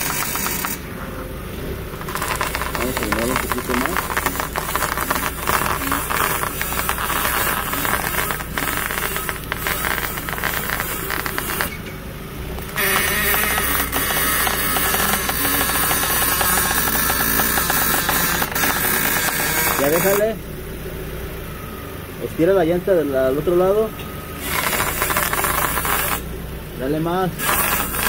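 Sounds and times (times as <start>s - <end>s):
ball joint creaking and squeaking: 0.0s - 0.8s, 1.9s - 12.0s, 12.6s - 20.3s, 24.0s - 26.3s, 27.4s - 28.0s.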